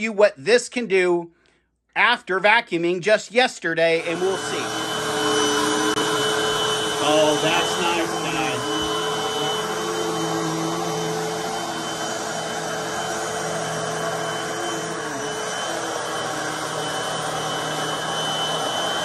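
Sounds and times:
vacuum cleaner running: 0:03.9 - 0:19.0.

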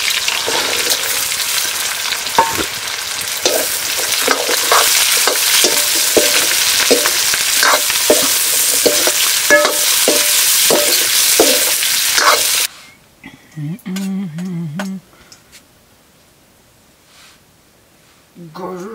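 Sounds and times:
meat sizzling in oil: 0:00.0 - 0:12.7
metal spoon scraping pan: 0:03.4 - 0:12.7.

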